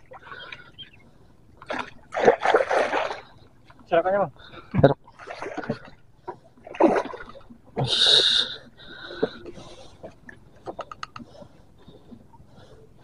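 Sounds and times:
fish splashing in water: 1.6s - 3.3s.

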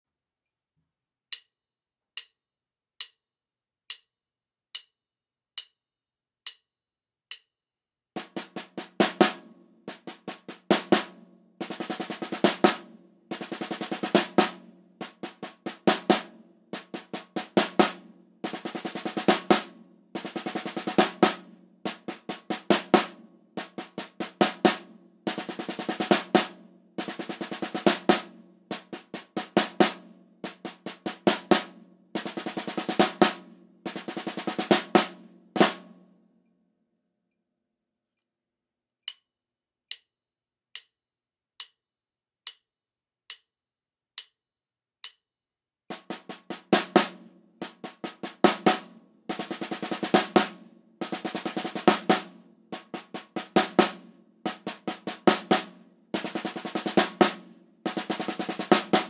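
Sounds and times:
sharp count-in clicks: 2.1s - 2.4s, 3.0s - 3.2s, 3.9s - 4.1s, 4.7s - 5.0s, 5.6s - 5.8s, 6.4s - 6.7s, 7.3s - 7.5s, 39.0s - 39.3s, 40.7s - 41.0s, 41.6s - 41.8s, 42.4s - 42.6s, 43.3s - 43.5s, 44.2s - 44.4s, 45.0s - 45.2s
snare drum roll: 8.2s - 36.0s, 45.9s - 59.0s.

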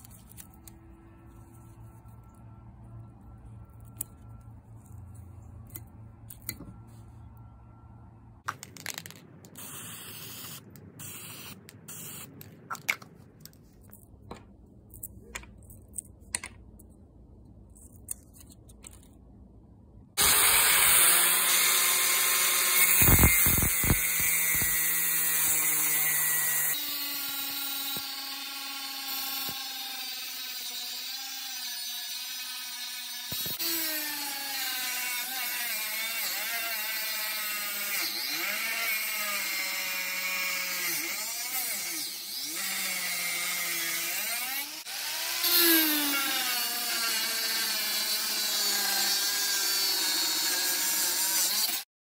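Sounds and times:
angle grinder cutting steel: 20.2s - 51.9s.

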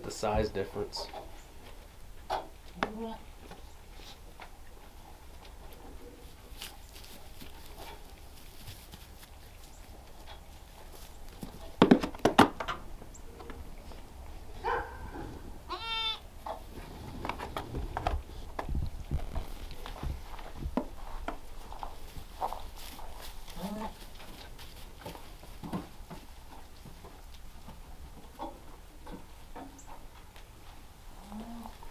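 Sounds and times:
goat kids bleating: 15.7s - 16.2s.

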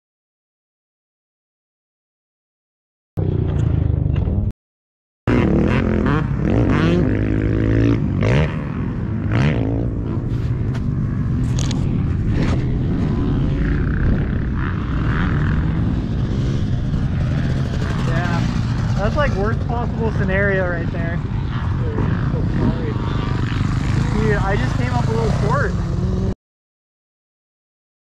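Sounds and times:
dirt bike engines revving: 5.3s - 26.4s.

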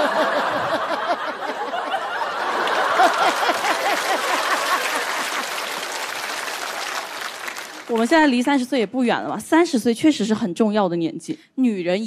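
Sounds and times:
audience laughing: 0.0s - 6.2s
applause: 2.3s - 8.3s.

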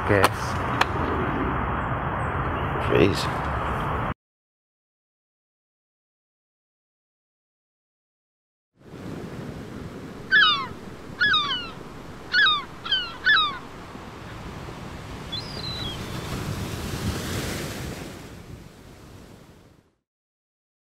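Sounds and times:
surf washing: 8.8s - 19.8s
gulls calling: 9.6s - 16.7s.

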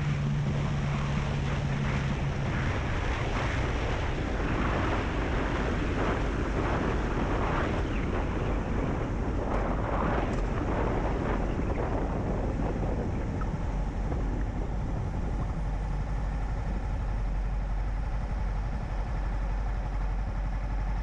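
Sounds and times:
faint motorcycle engine: 0.0s - 21.0s
wind rush on microphone: 0.0s - 21.0s.

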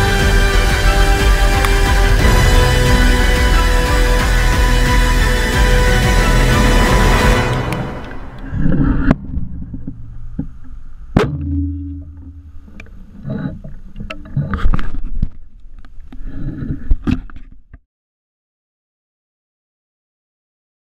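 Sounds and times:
music: 0.0s - 9.2s
short low hum: 7.0s - 13.6s.

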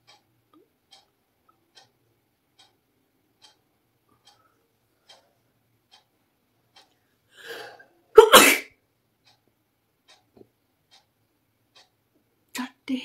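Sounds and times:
woman breathing in: 7.3s - 7.9s
woman sneezing: 8.2s - 8.7s.

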